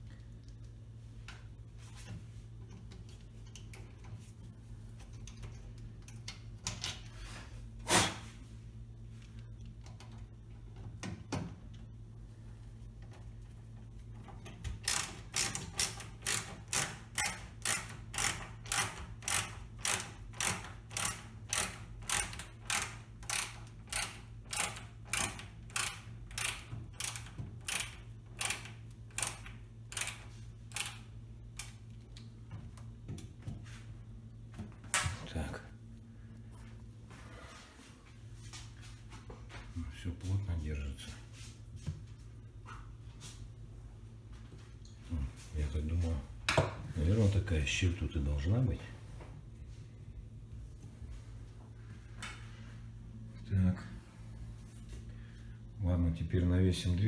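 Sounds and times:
ratcheting screwdriver clicking: 14.8s - 31.8s.

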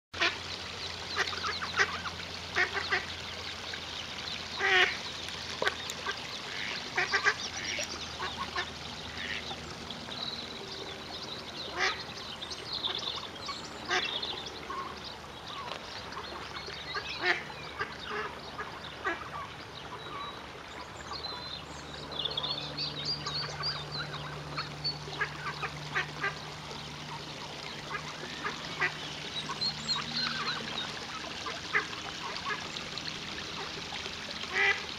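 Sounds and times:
ducks calling: 1.2s - 3.1s, 4.6s - 5.0s, 5.6s - 9.5s, 11.7s - 12.0s, 15.6s - 19.5s, 27.0s - 32.7s, 34.5s - 34.8s.

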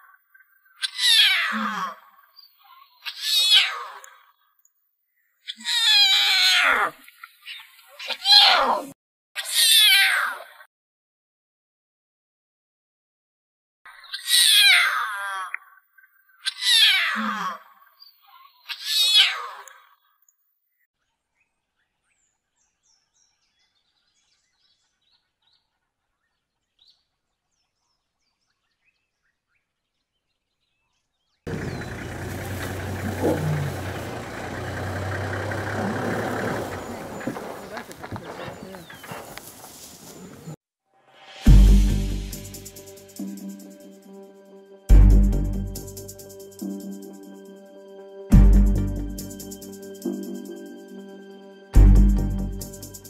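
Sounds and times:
lion cub mewing cries: 0.8s - 2.0s, 3.0s - 4.0s, 5.5s - 6.9s, 7.5s - 10.5s, 14.1s - 15.6s, 16.4s - 17.6s, 18.7s - 19.7s, 31.5s - 34.2s
lion cub mewing: 32.4s - 39.4s.

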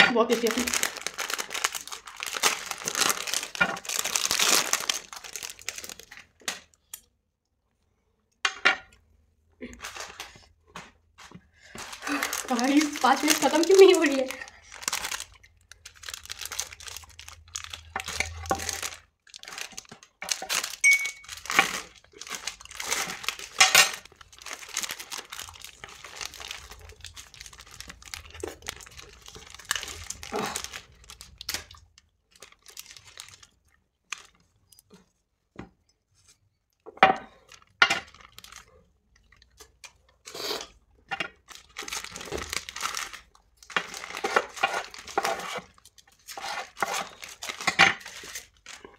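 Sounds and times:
plastic wrappers crinkling and tearing: 0.2s - 7.0s, 9.6s - 11.0s, 11.6s - 35.1s, 37.3s - 48.9s.

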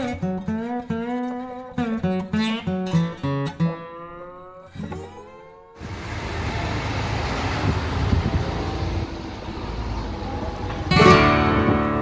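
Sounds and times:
music with held notes: 10.7s - 12.0s.

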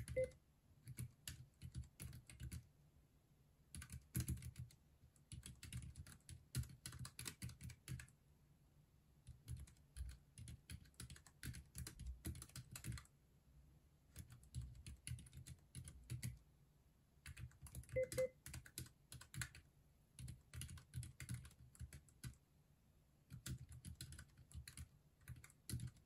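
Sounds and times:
mechanical keyboard keys clicking: 0.0s - 0.3s, 3.8s - 8.0s, 9.3s - 13.0s, 17.3s - 19.6s, 20.2s - 22.4s, 23.3s - 26.0s.

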